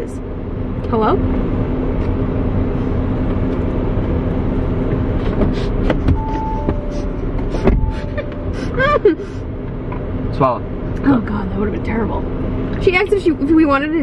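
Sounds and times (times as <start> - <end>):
car cabin engine rumble: 0.0 - 14.0
brief tones: 6.2 - 8.6.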